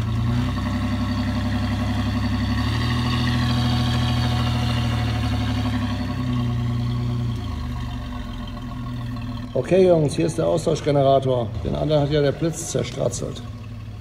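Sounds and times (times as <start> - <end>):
vehicle engine revving: 0.0 - 14.0.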